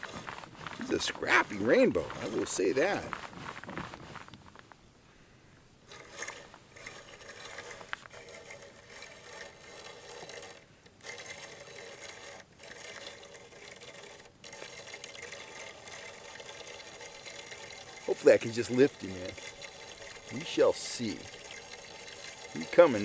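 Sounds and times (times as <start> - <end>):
fishing reel gears whirring: 5.9 - 23.0.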